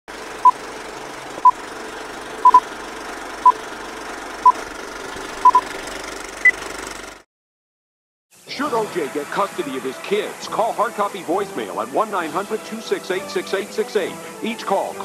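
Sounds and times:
short electronic beeps: 2.4 - 2.6, 5.4 - 5.6
steady hiss: 8.4 - 15.0.

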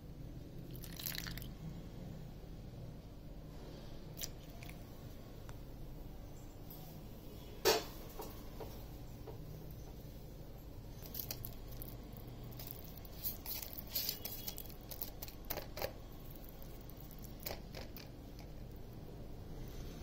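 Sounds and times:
fingers squishing paste: 11.0 - 18.8.

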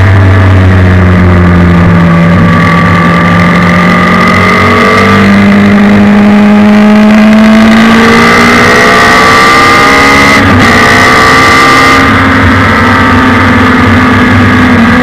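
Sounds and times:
motorcycle engine running hard: 0.0 - 15.0.

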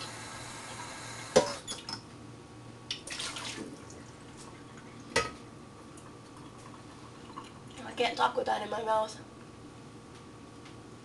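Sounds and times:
water splashing: 3.0 - 3.8.

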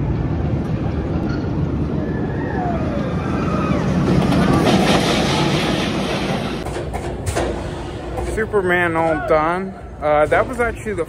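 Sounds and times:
roller coaster rumbling on track: 0.0 - 11.0
falling whines: 1.3 - 6.6.

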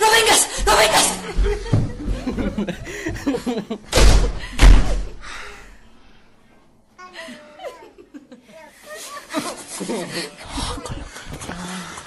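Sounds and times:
people laughing: 1.0 - 3.9, 7.2 - 12.0
heavy thumps: 1.4 - 3.3, 3.9 - 5.2.

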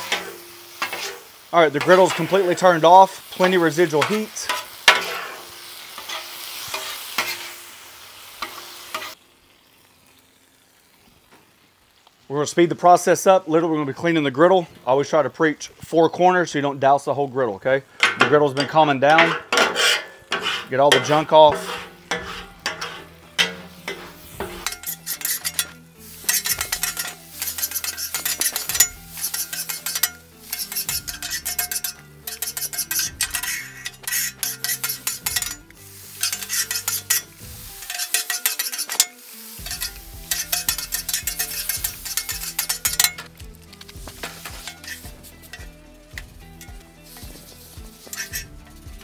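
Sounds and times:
metal scraper rasping on griddle: 0.0 - 7.6, 18.0 - 49.0
liquid sizzling on hot surface: 0.0 - 49.0.

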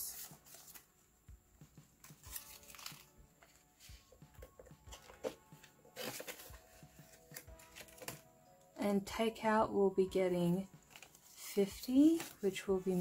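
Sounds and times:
banknotes rustling and crinkling: 0.0 - 1.0, 2.0 - 8.3, 10.8 - 13.0
soft background music: 0.0 - 13.0.

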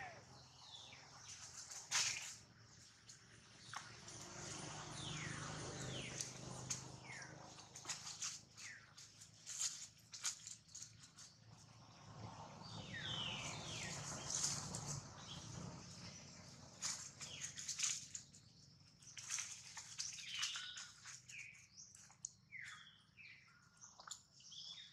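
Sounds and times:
short high falling calls: 0.0 - 0.4
rustles of dry leaves: 0.0 - 22.2.

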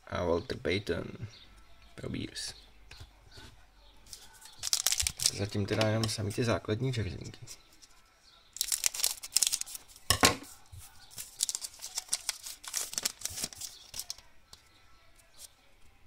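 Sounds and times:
foil wrapper crinkling and tearing: 4.1 - 5.8, 8.6 - 10.1, 11.1 - 14.3.

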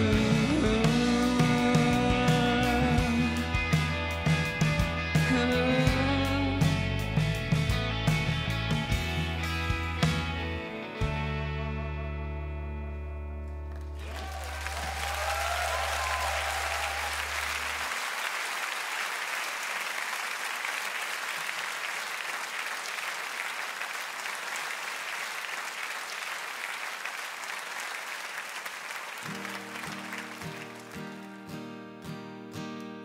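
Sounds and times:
acoustic guitar strumming chords: 0.0 - 13.4, 29.3 - 33.0
audience applauding: 13.7 - 31.7.

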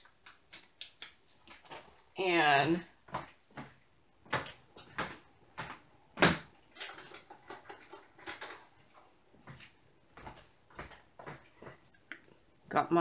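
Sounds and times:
objects clicking and knocking: 6.7 - 9.0.

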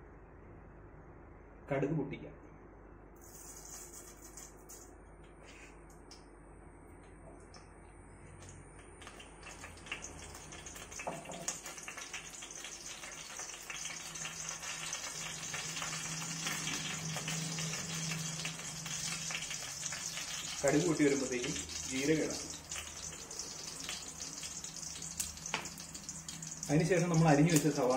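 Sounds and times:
seeds crackling and popping: 8.8 - 27.9
mustard seeds sizzling in hot oil: 9.0 - 27.9.

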